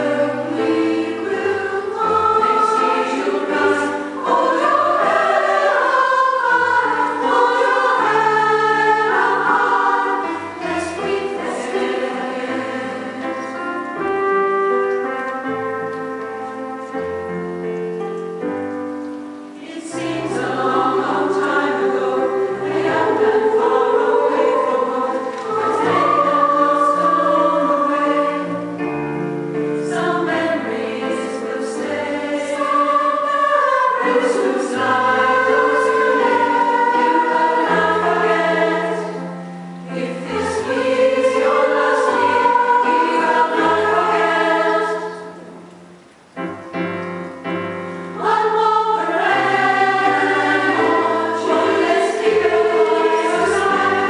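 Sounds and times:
mixed choir singing in harmony: 0:00.0 - 0:14.7, 0:19.4 - 0:54.0.

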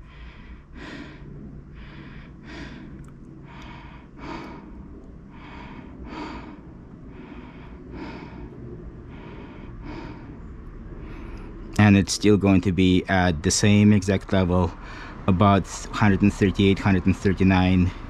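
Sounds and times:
person breathing: 0:00.0 - 0:11.8, 0:14.8 - 0:15.3.

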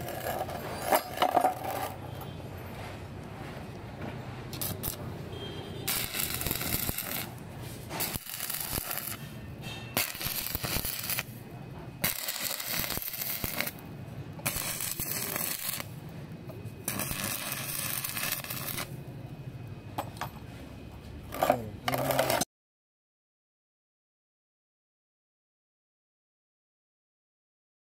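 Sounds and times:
welding arc crackling and sizzling: 0:00.0 - 0:02.1, 0:04.5 - 0:19.1, 0:21.2 - 0:22.5.

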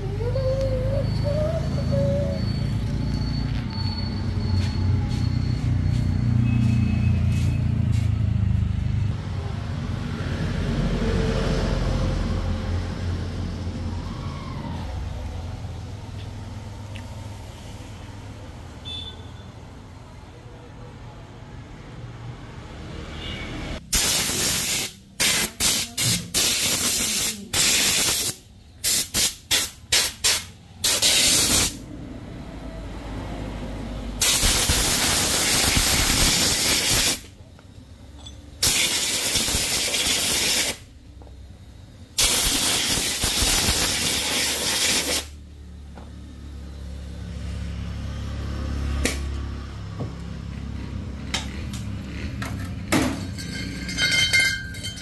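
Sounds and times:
air blow gun hissing: 0:23.9 - 0:31.8, 0:34.2 - 0:37.3, 0:38.6 - 0:40.9, 0:42.2 - 0:45.4.

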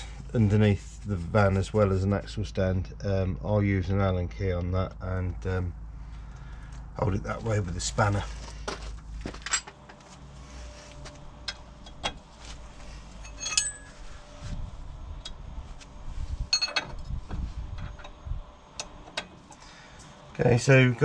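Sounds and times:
metal tools clinking: 0:09.4 - 0:09.8, 0:13.2 - 0:14.0, 0:16.5 - 0:17.0.

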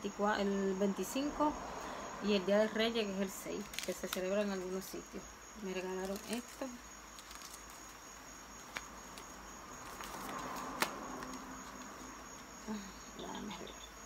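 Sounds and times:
fabric rustling: 0:05.9 - 0:12.5.

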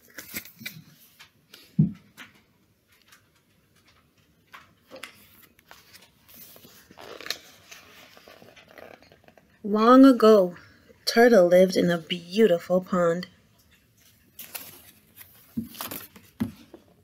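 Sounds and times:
book pages turning: 0:00.0 - 0:01.4, 0:04.6 - 0:09.5, 0:13.9 - 0:16.9.

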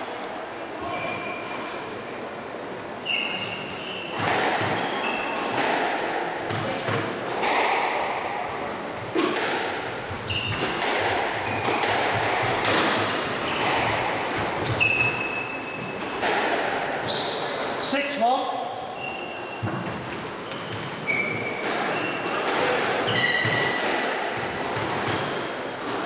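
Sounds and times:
sneakers squeaking on wooden floor: 0:00.8 - 0:01.8, 0:03.0 - 0:05.6, 0:10.0 - 0:16.3, 0:17.0 - 0:17.9, 0:18.8 - 0:25.5
squash ball striking rackets: 0:04.1 - 0:17.8, 0:19.6 - 0:26.0.

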